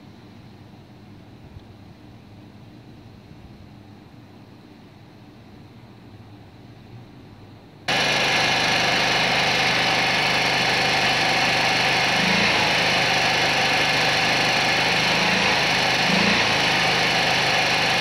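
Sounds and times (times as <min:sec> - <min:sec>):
motorcycle engine idling: 0:07.9 - 0:18.0.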